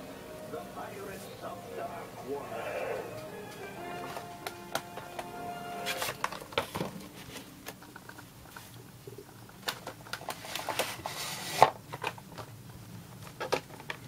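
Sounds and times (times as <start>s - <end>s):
packaging rustling and clicking: 4.1s - 8.8s, 9.4s - 12.6s.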